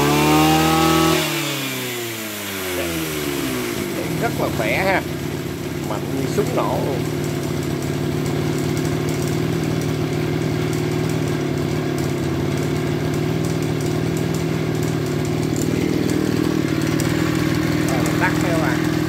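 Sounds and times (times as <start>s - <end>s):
brushcutter engine running: 0.0s - 19.0s.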